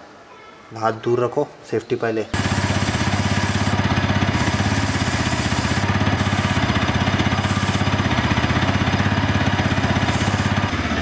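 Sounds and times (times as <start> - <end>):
aerosol spray hissing: 2.4 - 8.0, 9.3 - 10.7
motorcycle engine idling: 2.4 - 11.0.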